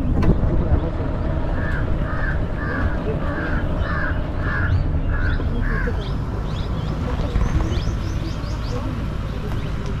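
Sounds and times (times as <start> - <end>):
low rumble: 0.0 - 10.0
crow cawing: 1.6 - 6.1.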